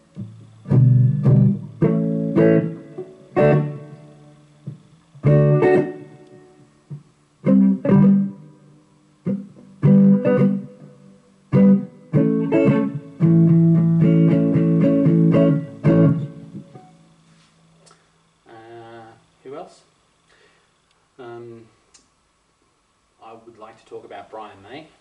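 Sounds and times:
electric guitar riff: 0.0 - 17.1.

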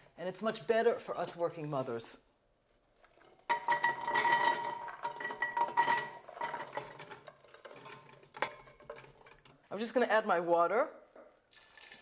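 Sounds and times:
beans clattering into metal pot: 3.4 - 9.5.

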